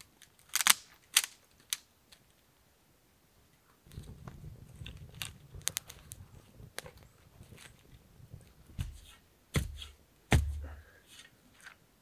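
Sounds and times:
campfire rumble: 0:03.8 - 0:09.0
fire crackling and popping: 0:03.8 - 0:10.7
heavy thud: 0:09.6 - 0:10.8.

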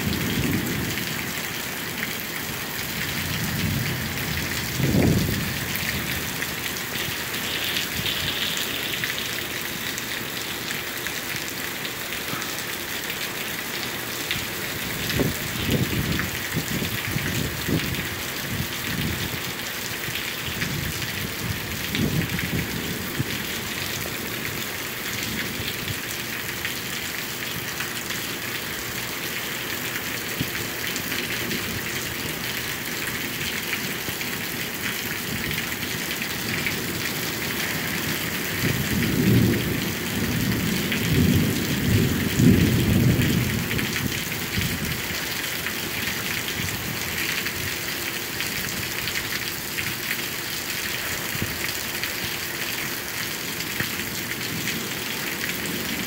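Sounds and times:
steady rain hissing: 0:00.0 - 0:56.0
low rolling thunder: 0:02.9 - 0:06.4, 0:38.2 - 0:45.0.

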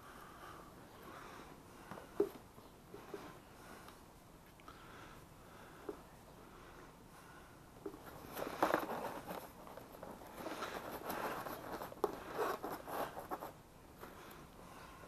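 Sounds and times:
rustling of fishing gear: 0:07.9 - 0:13.5.

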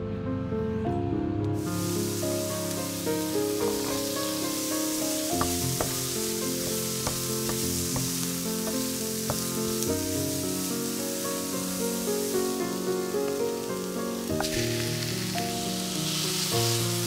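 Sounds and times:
vegetables sizzling in oil: 0:01.6 - 0:17.0
wooden spatula clicking on pan: 0:05.4 - 0:09.5.

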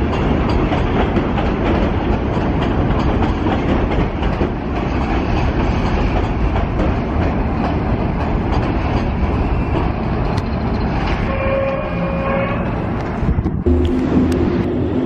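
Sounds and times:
subway train wheels rumbling on rail: 0:00.0 - 0:15.0
steady whine: 0:13.6 - 0:15.0.

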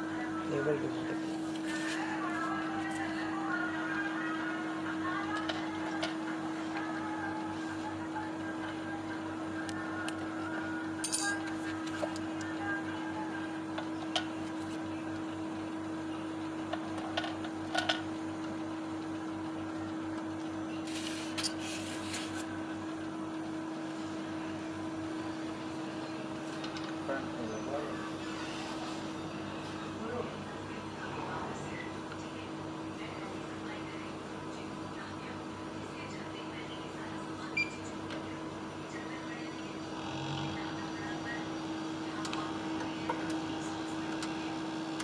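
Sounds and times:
centrifuge humming: 0:38.8 - 0:45.0.

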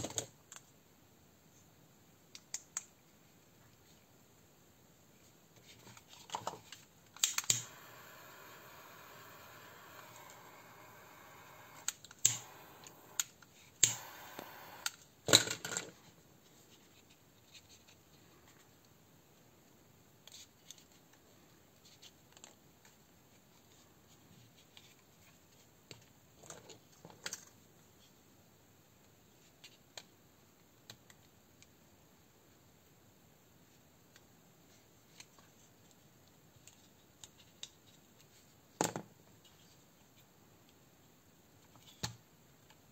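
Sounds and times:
plastic and metal parts clicking: 0:06.3 - 0:15.9.

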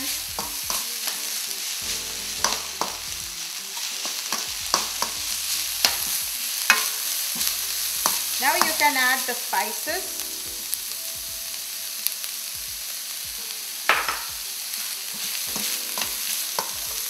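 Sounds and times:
metal spatula scraping a pan: 0:00.0 - 0:03.1, 0:03.8 - 0:09.3
vegetables sizzling in hot oil: 0:00.0 - 0:17.0.

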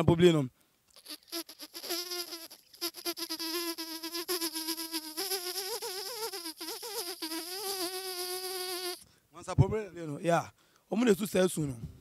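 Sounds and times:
man imitating mosquito buzz: 0:00.9 - 0:09.0.

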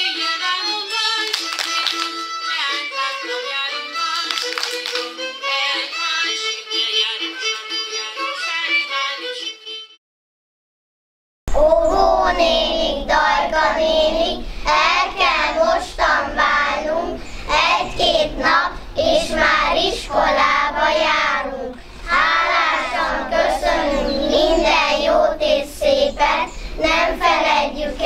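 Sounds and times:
children singing: 0:11.5 - 0:28.0.

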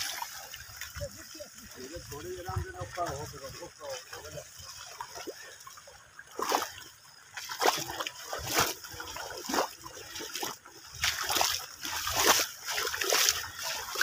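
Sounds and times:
water splashing and sloshing: 0:00.0 - 0:14.0.

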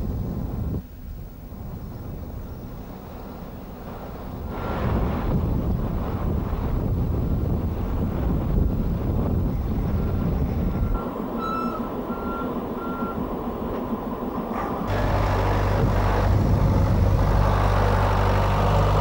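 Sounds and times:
wind on microphone: 0:00.0 - 0:12.4, 0:15.6 - 0:19.0
tractor engine running: 0:01.4 - 0:19.0
reversing alarm beeps: 0:10.8 - 0:13.3.

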